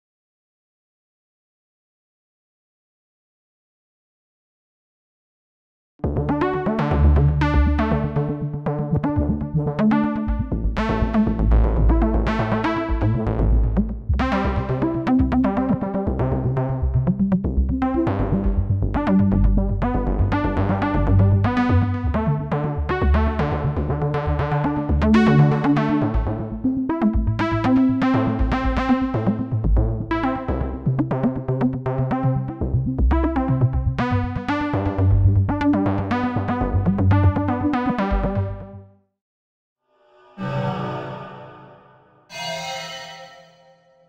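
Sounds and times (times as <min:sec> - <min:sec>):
synthesizer melody: 0:40.3 - 0:44.0.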